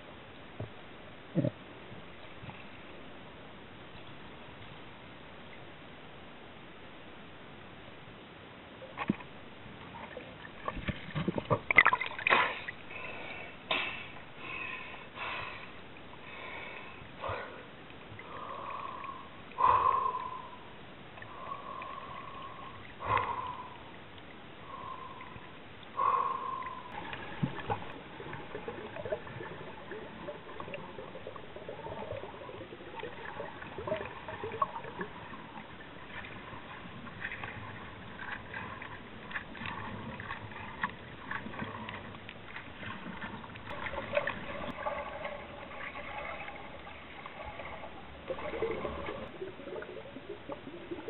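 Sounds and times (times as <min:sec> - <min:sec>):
water sloshing and gurgling: 0:00.0 - 0:06.0, 0:08.5 - 0:51.0
knocks and splashes: 0:10.0 - 0:12.8, 0:27.0 - 0:49.4.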